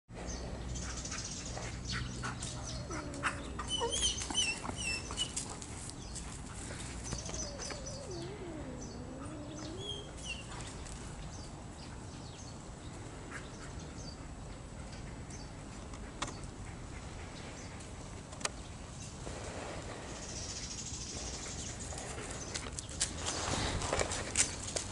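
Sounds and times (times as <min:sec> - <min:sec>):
small birds chirping: 0:00.1 - 0:23.8
low wavering animal whine: 0:06.9 - 0:10.6
crunching clicks in dry leaves: 0:22.5 - 0:24.9.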